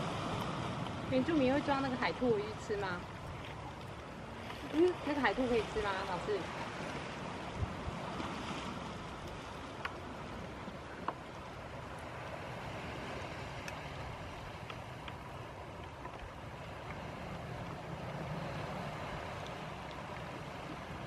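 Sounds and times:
wind on microphone: 0.0 - 11.0
shallow seawater washing: 0.0 - 21.0
faint ticks: 14.5 - 15.2.

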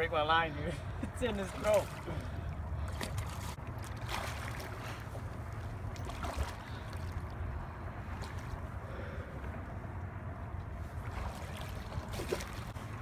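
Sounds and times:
fish splashing in water: 1.6 - 7.4, 10.9 - 13.0.

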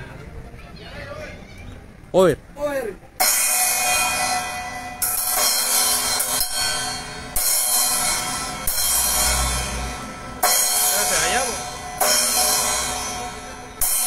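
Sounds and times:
cymbal crashes ringing: 3.2 - 14.0.

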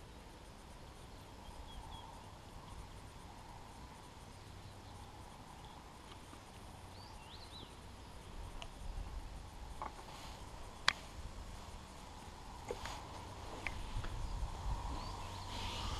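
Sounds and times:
faint bird chirps: 1.0 - 5.9, 6.9 - 9.3, 13.7 - 15.9.

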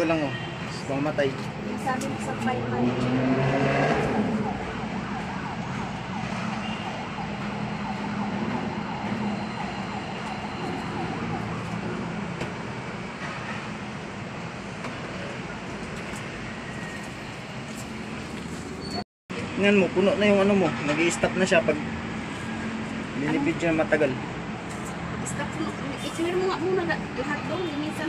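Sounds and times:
traffic hum: 0.0 - 28.0
emergency vehicle siren: 1.0 - 13.2.

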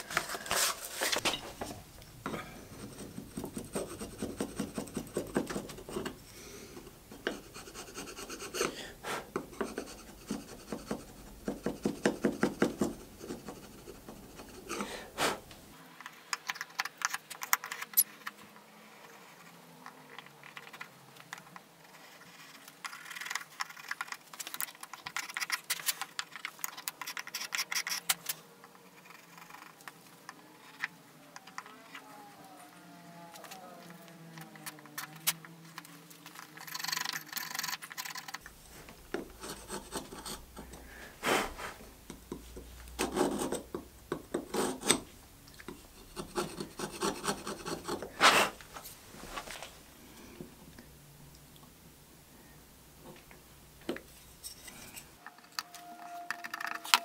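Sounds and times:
scratching on wood: 33.4 - 41.8.

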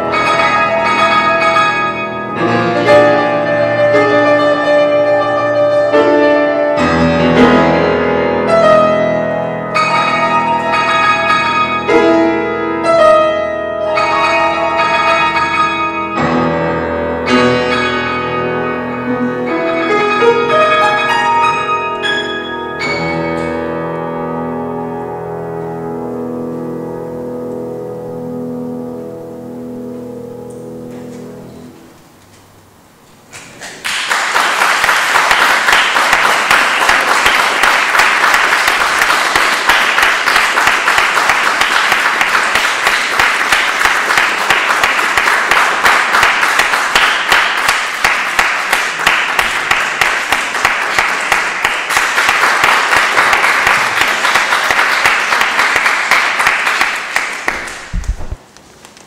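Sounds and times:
piano chord: 0.0 - 32.8
audience applause: 33.6 - 58.3.

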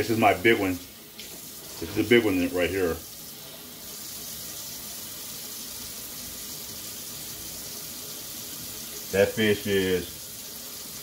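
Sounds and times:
faucet running into steel sink: 0.0 - 11.0.

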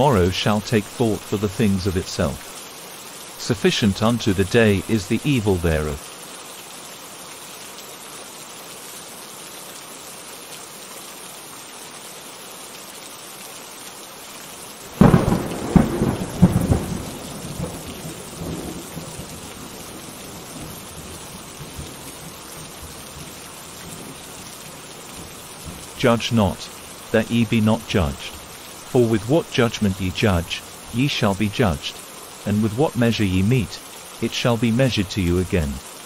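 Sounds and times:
steady rain: 0.0 - 36.0
thunder clap and rumble: 15.0 - 23.3.

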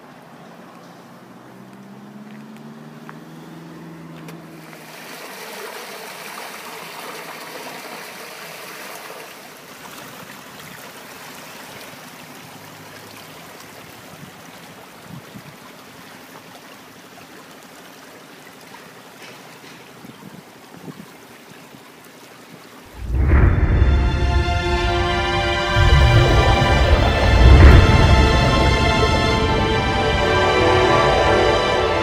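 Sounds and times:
vehicle engine hum: 0.0 - 5.0, 22.9 - 32.0
floodwater rushing: 0.0 - 32.0.

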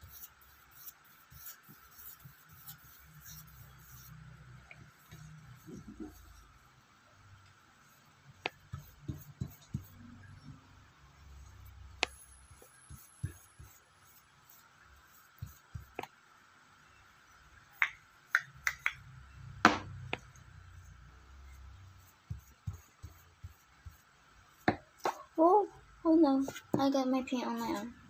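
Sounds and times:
knock on tabletop: 19.6 - 19.9.

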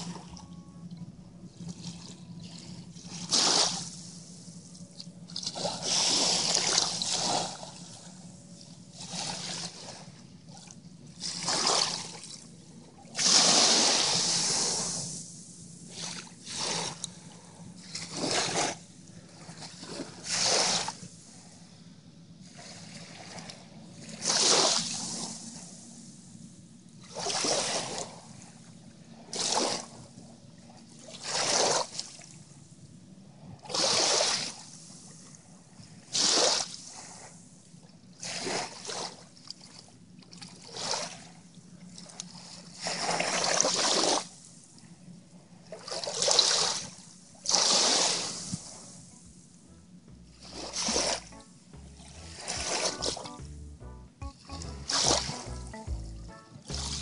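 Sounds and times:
small waves lapping: 0.0 - 21.5, 38.2 - 44.4, 45.7 - 49.2, 50.4 - 53.4.

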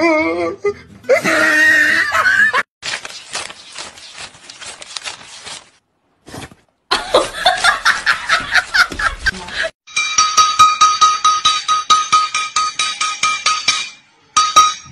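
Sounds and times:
scream-like cry: 0.0 - 2.2.

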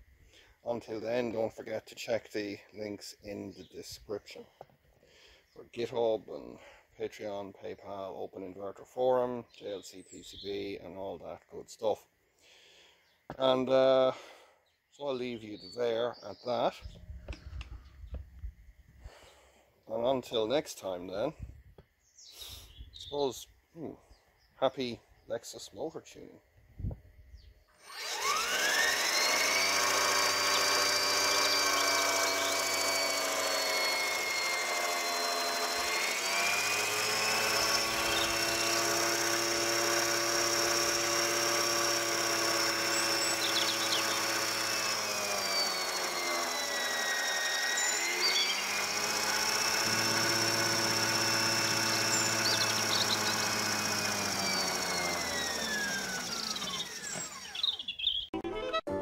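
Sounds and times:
electric motor whining: 27.8 - 57.9.

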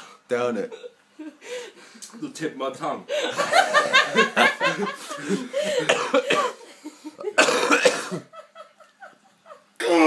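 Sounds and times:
man laughing: 3.1 - 6.1
man coughing: 5.2 - 8.3.

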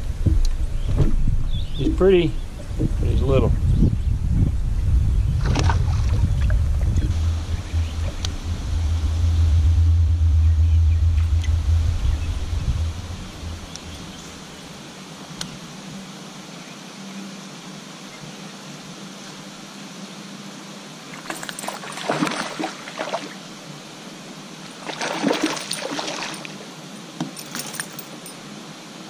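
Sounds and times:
fish splashing at water surface: 21.2 - 23.4, 24.7 - 26.6.

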